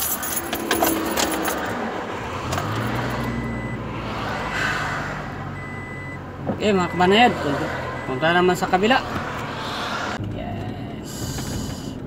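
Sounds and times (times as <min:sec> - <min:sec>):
keys jangling: 0:00.0 - 0:01.8
car engine humming: 0:00.0 - 0:12.0.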